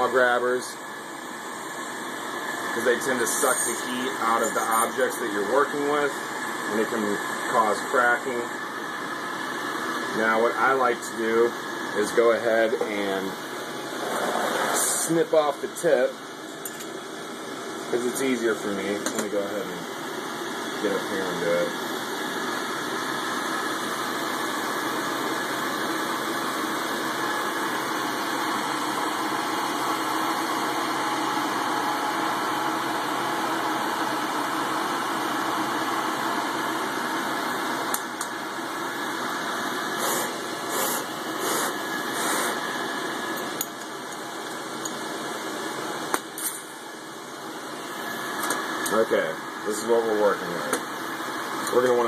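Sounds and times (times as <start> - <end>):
torch hissing: 0.0 - 15.4, 36.6 - 52.0.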